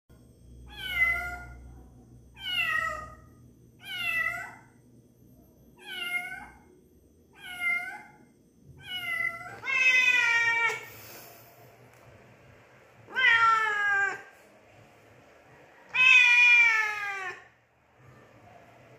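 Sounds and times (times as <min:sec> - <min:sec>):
cat meowing: 0:08.8 - 0:10.9, 0:13.1 - 0:14.3, 0:15.9 - 0:17.5.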